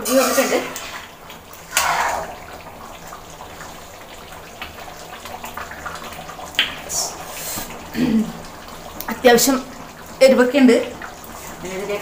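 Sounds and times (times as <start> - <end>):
spoon scraping a pan: 0.0 - 1.0
curry simmering and bubbling: 0.0 - 12.0.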